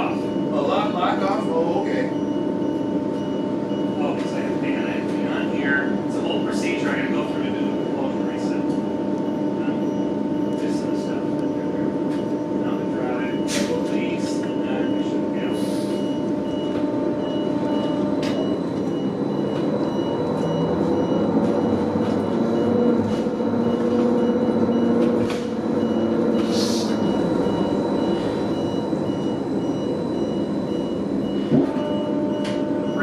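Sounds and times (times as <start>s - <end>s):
high electronic beep: 6.6s - 25.0s, 25.7s - 33.0s
electric drive humming: 16.1s - 33.0s.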